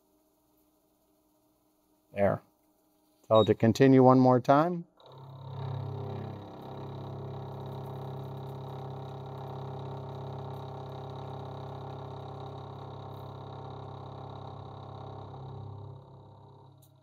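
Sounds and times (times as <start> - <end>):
milling machine cutting metal: 5.0 - 16.9.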